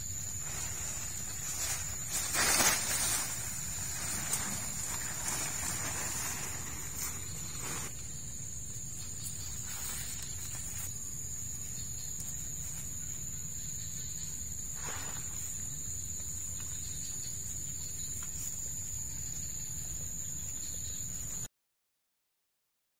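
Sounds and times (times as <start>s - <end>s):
insects droning: 0.0s - 21.5s
tent fabric rustling: 0.3s - 8.0s, 9.5s - 10.9s.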